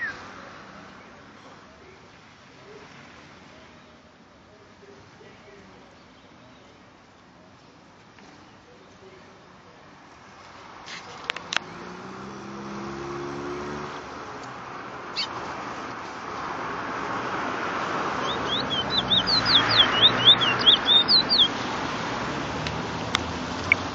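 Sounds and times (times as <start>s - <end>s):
songbird whistling: 18.2s - 21.6s.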